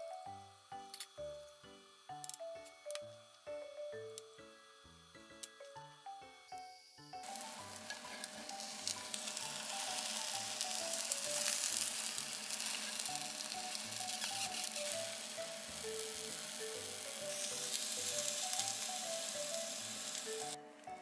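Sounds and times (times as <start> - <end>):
egg sizzling in a pan: 7.2 - 20.6.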